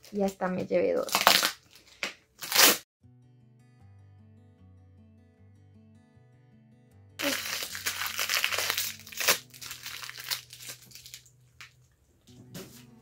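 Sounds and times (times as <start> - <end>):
plastic wrapping crinkling: 1.0 - 2.8, 7.2 - 11.9.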